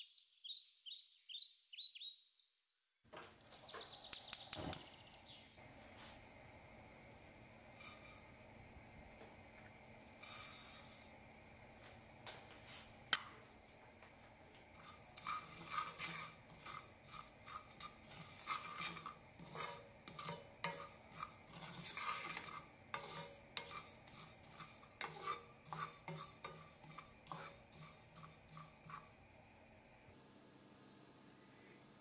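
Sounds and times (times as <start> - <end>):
sharp tick: 4.1 - 4.9
spoon scraping seeds in a pan: 7.6 - 29.3.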